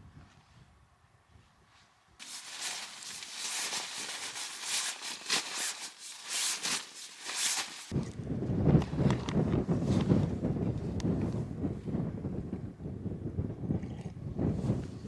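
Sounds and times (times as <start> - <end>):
nylon sleeping mat crinkling: 2.2 - 8.0.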